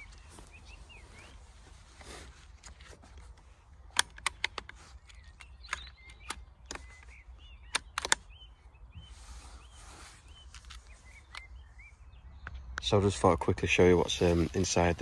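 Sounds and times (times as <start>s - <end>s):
small bird chirping: 0.0s - 1.9s, 3.8s - 12.8s
rustle: 0.0s - 5.8s, 8.9s - 11.7s, 13.7s - 15.0s
air rifle clicks and knocks: 2.6s - 8.4s.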